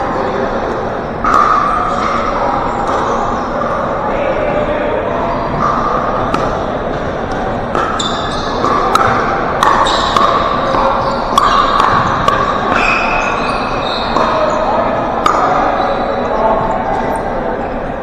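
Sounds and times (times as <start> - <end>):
sneakers squeaking on court: 5.5 - 17.4.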